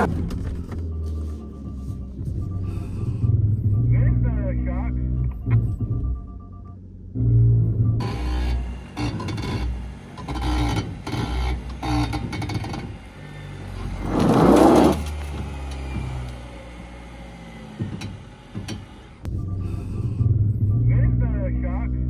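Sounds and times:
vehicle driving low rumble: 0.0s - 22.0s
loud scraping noise: 13.8s - 16.2s.

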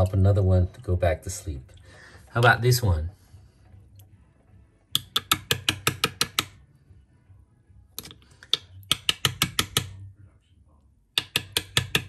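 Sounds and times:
mussel shell tapping on hard surface: 5.0s - 6.6s, 8.0s - 10.0s, 11.2s - 12.0s.

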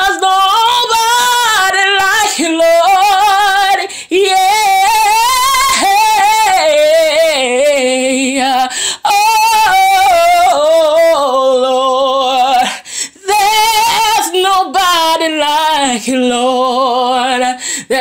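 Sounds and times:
woman singing gospel: 0.0s - 18.0s.

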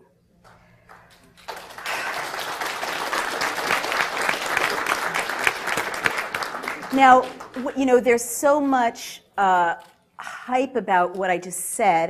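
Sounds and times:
audience applauding: 0.4s - 8.9s.

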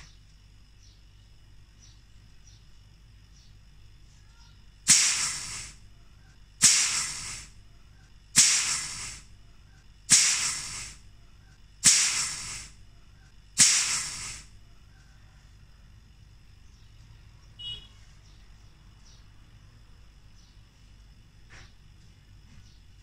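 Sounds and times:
short loud hiss bursts: 4.8s - 5.9s, 6.6s - 7.6s, 8.3s - 9.4s, 10.1s - 11.1s, 11.8s - 12.8s, 13.6s - 14.6s.

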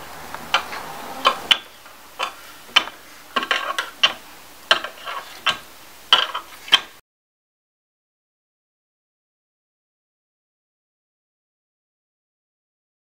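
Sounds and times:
doll feet tapping on plastic stairs: 0.6s - 7.0s.

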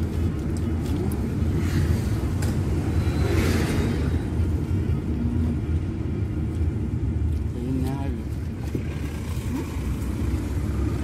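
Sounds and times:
car engine and road noise: 0.0s - 11.0s.

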